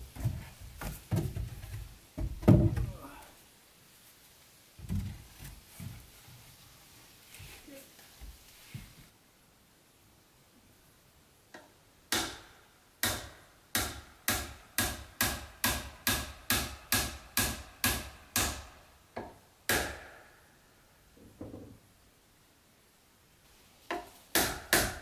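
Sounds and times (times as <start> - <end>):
hammer driving nails into wood: 12.1 - 18.7, 23.9 - 25.0.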